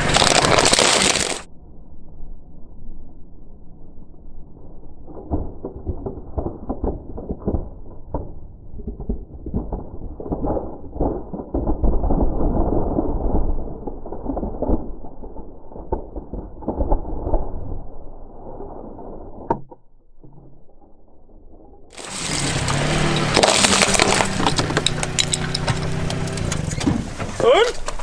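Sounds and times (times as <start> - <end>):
plastic cracking and crunching: 0.0 - 1.5, 21.9 - 28.0.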